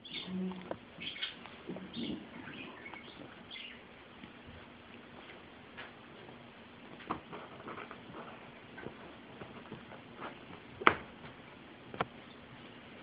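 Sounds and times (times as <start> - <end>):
cats scuffling: 2.9 - 13.0.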